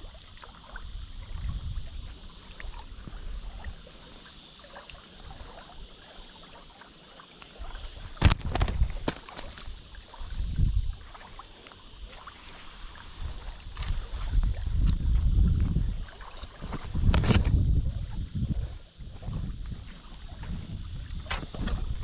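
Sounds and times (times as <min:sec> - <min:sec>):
steady high hiss: 0:00.0 - 0:22.0
sharp click: 0:08.2 - 0:09.7
low wind rumbles: 0:13.2 - 0:22.0.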